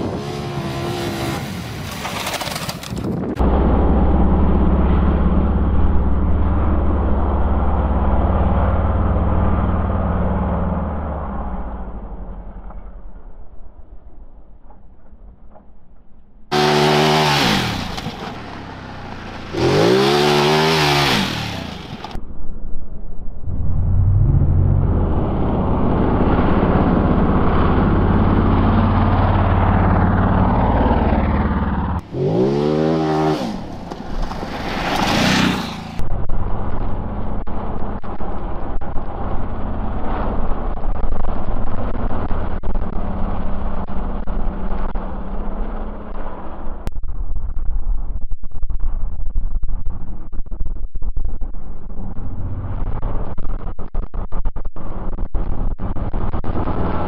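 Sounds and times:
motorcycle engine revving: 16.5 - 22.2, 23.4 - 36.2.

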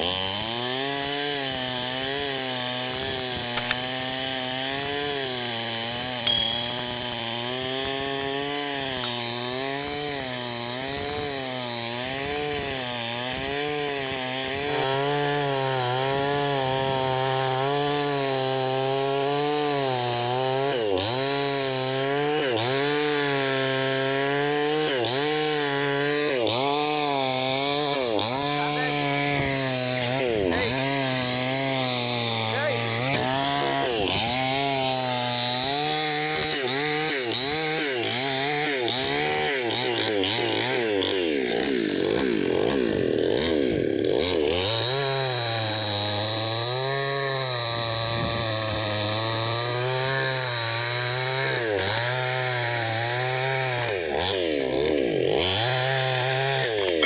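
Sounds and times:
chainsaw cutting wood: 0.0 - 57.0
sharp click: 3.6 - 3.8.

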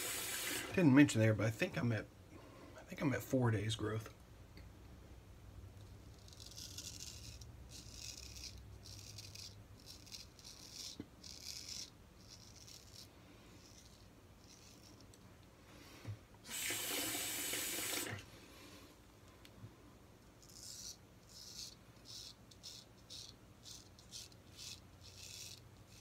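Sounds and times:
razor scraping beard: 6.0 - 15.2, 20.4 - 26.0.

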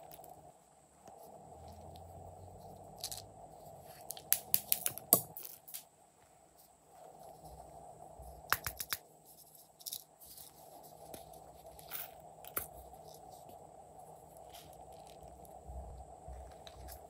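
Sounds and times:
toy figurines clicking and crackling: 4.1 - 5.8, 8.5 - 9.1.

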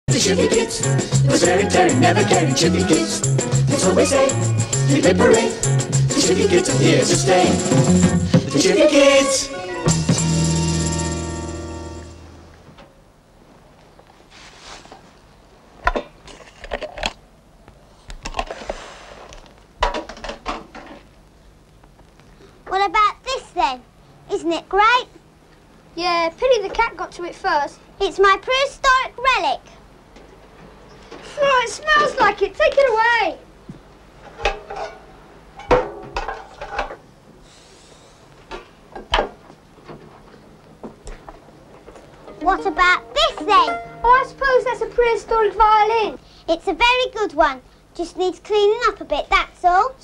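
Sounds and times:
sacking rustling: 14.2 - 15.1.

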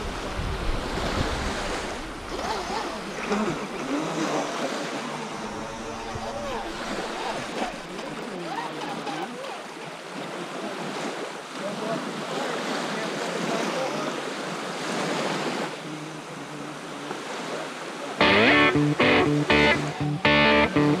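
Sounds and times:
wind on microphone: 0.0 - 3.2
small waves washing onto shore: 0.0 - 18.2.

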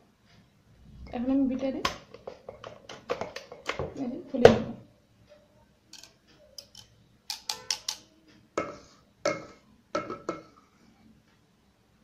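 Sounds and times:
beaters tapping metal bowl rim: 6.0 - 10.6.

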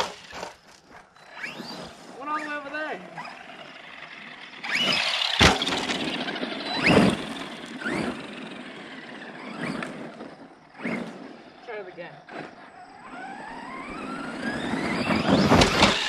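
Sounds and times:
tyres rushing on dirt: 0.0 - 16.0
electric motor whining: 2.9 - 11.6, 12.3 - 16.0
truck hitting the ground: 4.7 - 8.2, 14.5 - 16.0.

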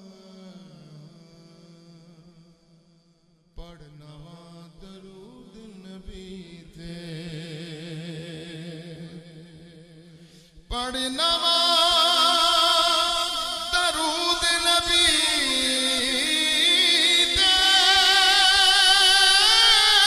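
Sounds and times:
loud full voice singing: 0.0 - 2.3, 10.7 - 20.0
man singing unaccompanied: 3.6 - 10.0, 10.7 - 20.0.

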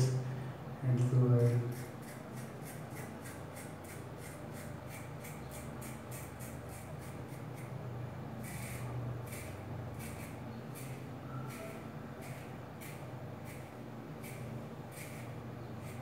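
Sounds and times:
razor scraping stubble: 1.0 - 7.7, 8.4 - 16.0.

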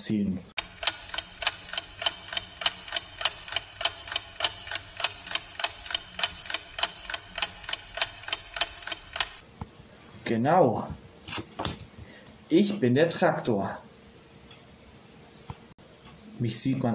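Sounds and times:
clock ticking: 0.6 - 9.4.

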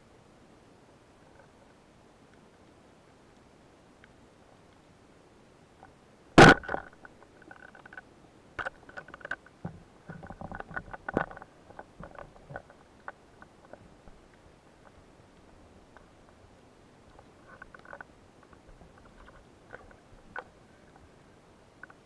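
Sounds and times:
speargun firing underwater: 6.4 - 6.9.

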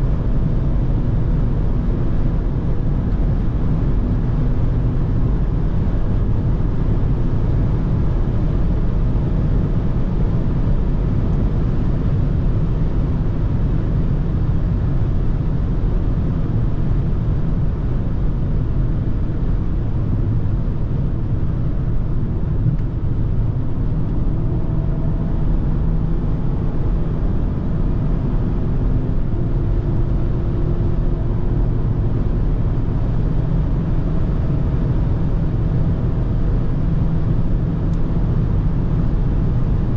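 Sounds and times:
car engine drone: 0.0 - 39.9.

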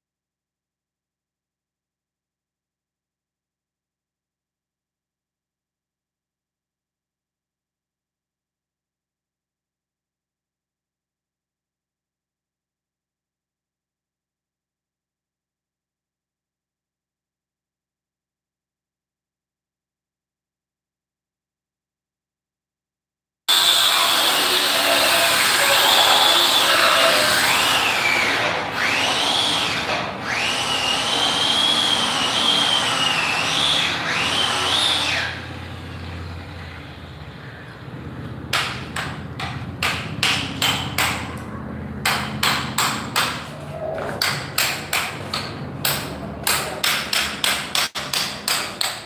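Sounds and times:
angle grinder grinding stone: 23.5 - 35.4
sharp knocks: 38.5 - 41.4, 42.0 - 49.0.

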